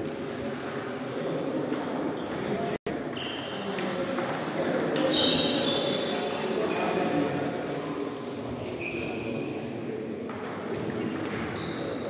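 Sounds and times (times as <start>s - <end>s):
murmur of busy hall: 0.0s - 12.0s
table tennis balls pinging: 10.3s - 12.0s.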